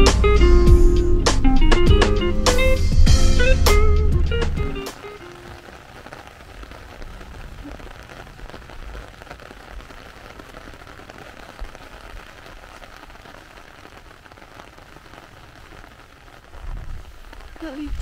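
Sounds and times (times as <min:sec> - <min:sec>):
low rumble: 0:00.0 - 0:04.7
rain pattering on umbrella: 0:03.4 - 0:18.0.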